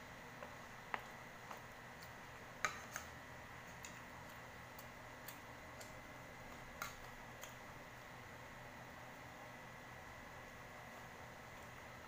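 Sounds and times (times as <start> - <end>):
cutlery clicking on a plate: 2.6 - 3.2.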